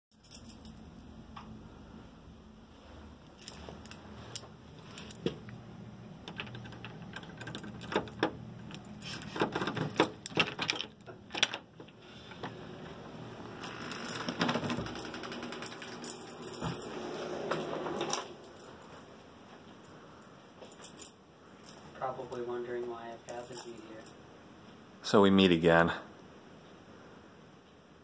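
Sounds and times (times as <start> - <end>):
keys jangling: 0.2 - 1.0, 6.3 - 11.6, 13.6 - 17.0, 18.4 - 19.1, 20.6 - 21.9, 23.3 - 24.2
key turning in lock: 6.2 - 11.7.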